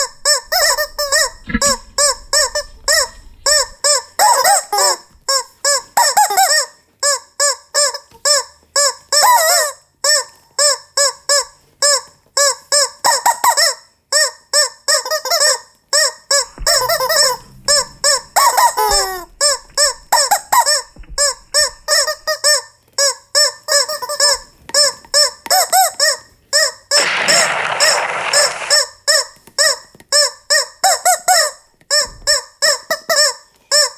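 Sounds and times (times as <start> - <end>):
rubber chickens squawking: 0.0 - 5.4, 26.9 - 28.9.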